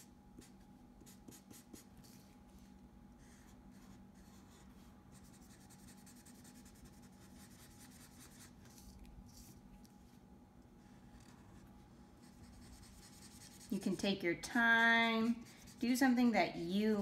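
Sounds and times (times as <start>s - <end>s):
steady low hum: 0.0s - 17.0s
marker scratching on paper: 0.4s - 2.2s, 12.2s - 14.0s.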